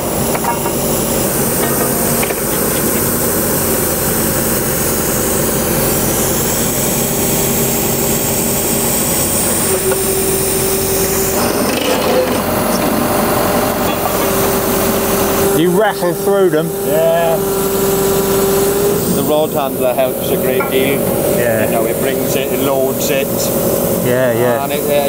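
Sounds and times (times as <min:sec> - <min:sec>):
drilling rig engine drone: 0:00.0 - 0:25.0
steady whine: 0:00.0 - 0:25.0.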